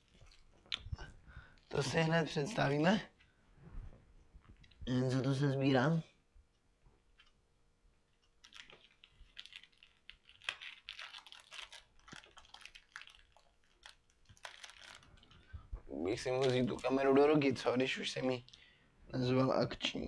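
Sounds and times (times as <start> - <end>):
small accessories clicking and rustling: 8.2 - 15.4.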